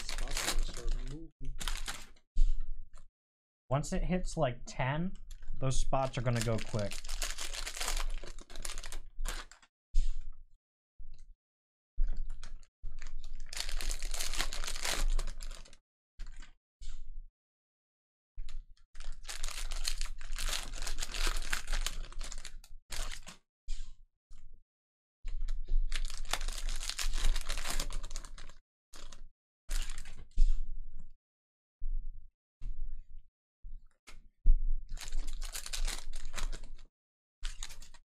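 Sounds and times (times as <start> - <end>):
plastic wrapping crinkling and tearing: 0.0 - 2.2, 5.7 - 9.6, 12.4 - 16.5, 19.0 - 23.4, 25.9 - 30.2, 34.9 - 38.0.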